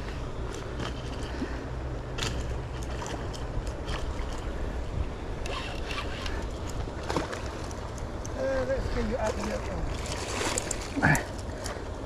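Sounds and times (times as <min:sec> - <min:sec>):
wind rumble on microphone: 0:00.0 - 0:12.0
fishing tackle clicking and rattling: 0:02.2 - 0:04.5, 0:05.4 - 0:08.7, 0:10.0 - 0:12.0.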